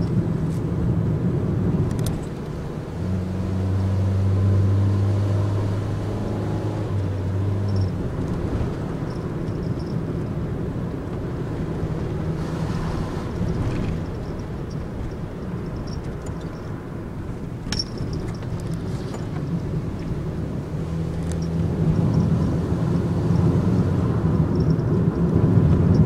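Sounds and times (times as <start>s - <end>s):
low engine hum: 0.0s - 26.0s
road and tyre rumble: 0.0s - 26.0s
clicks and rattles in cab: 1.8s - 2.6s, 12.9s - 20.2s.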